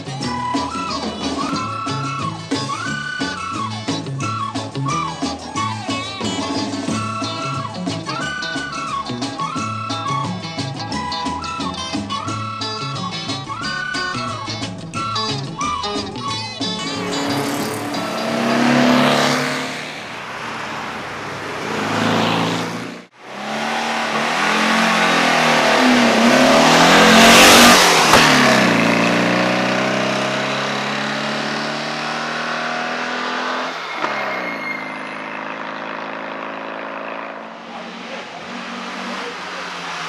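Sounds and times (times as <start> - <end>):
car engine driving past: 16.8 - 34.2.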